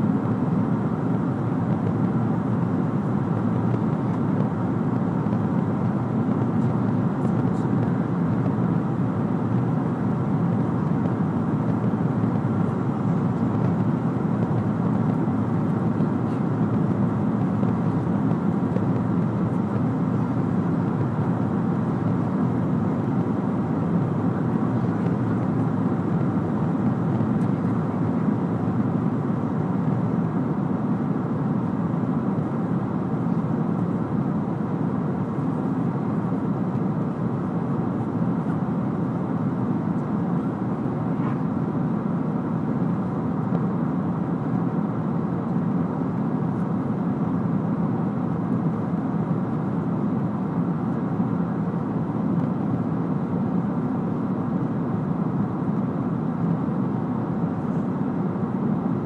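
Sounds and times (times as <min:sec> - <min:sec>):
airliner cabin noise: 0:00.0 - 0:59.0.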